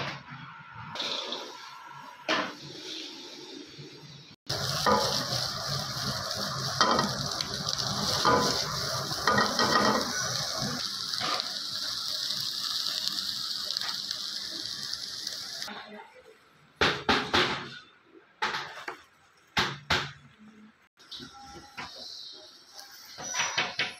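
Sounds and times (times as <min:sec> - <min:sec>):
steady hiss: 0:04.5 - 0:15.7.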